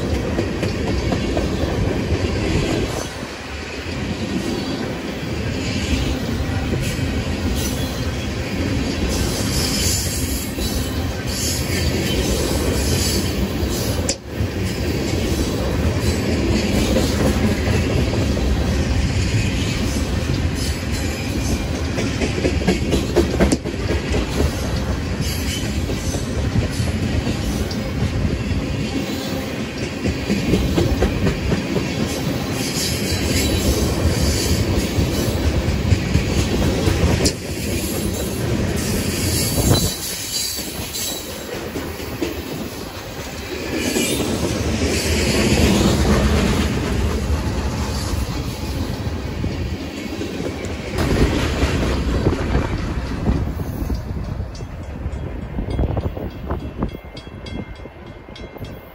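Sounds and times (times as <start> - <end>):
steel wheels rumbling on rail: 0.0 - 58.9
wheels clacking over rail joints: 14.9 - 29.0.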